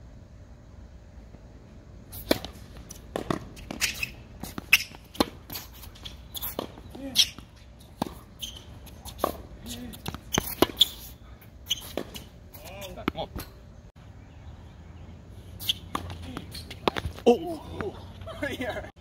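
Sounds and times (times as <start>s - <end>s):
racket hitting tennis ball: 2.1s - 13.6s, 15.6s - 18.0s
tennis ball bouncing: 2.2s - 11.1s, 11.7s - 12.4s, 15.6s - 18.0s
shoe squeaks on court: 3.2s - 13.5s, 15.6s - 17.2s.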